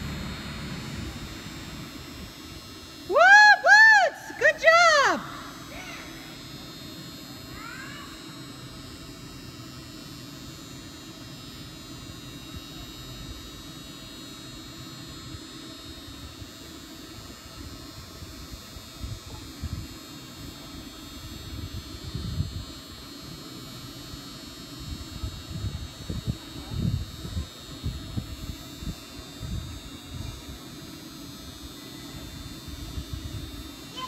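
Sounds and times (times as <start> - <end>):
dull low thumps: 0.0 - 2.4
ventilation fans humming: 0.0 - 34.0.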